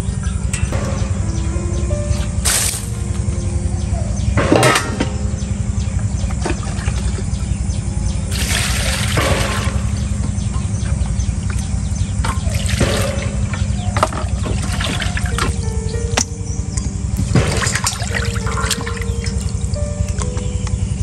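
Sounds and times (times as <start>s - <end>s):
water sloshing and splashing: 6.2s - 15.8s, 17.1s - 19.9s.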